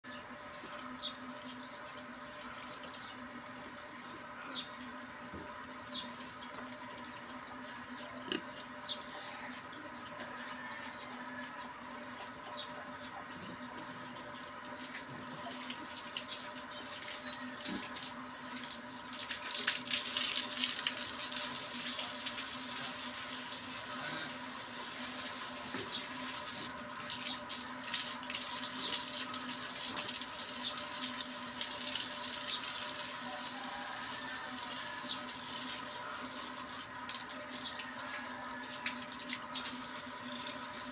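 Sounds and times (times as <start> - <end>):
hose water spraying on concrete: 14.8 - 40.9.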